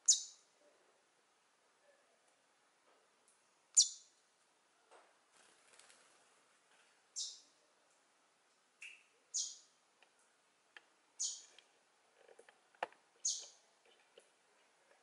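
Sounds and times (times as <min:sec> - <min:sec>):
small bird chirping: 0:00.0 - 0:00.5, 0:03.7 - 0:04.1, 0:07.1 - 0:07.6, 0:08.8 - 0:09.8, 0:11.2 - 0:11.6, 0:13.2 - 0:13.7.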